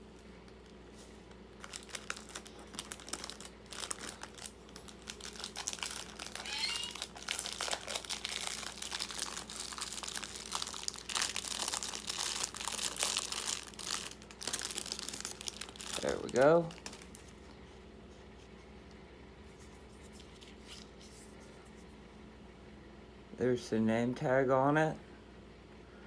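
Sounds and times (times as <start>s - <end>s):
plastic and paper crinkling: 0.5s - 18.6s.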